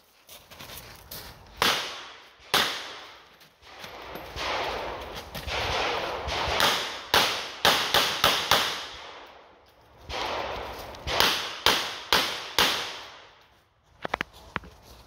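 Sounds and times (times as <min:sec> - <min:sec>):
revolver gunshots with echo: 0:01.6 - 0:09.4, 0:10.0 - 0:13.3.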